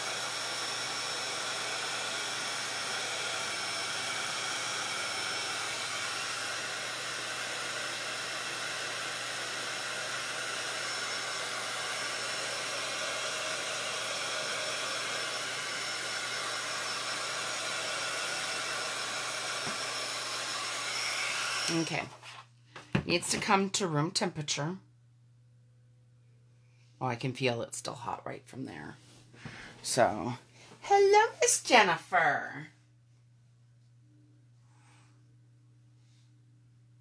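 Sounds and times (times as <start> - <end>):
heat tool fan whirring: 0.0 - 22.3.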